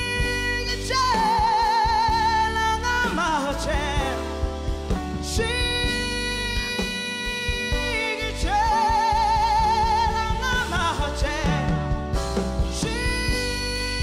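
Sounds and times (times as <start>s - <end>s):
instrumental backing: 0.0s - 14.0s.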